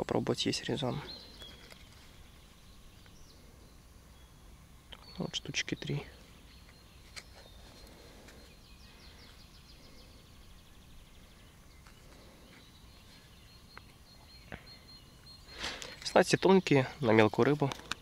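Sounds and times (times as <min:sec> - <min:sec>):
distant bird chirps: 0:00.0 - 0:18.0
small clicks in plastic pot: 0:17.6 - 0:18.0.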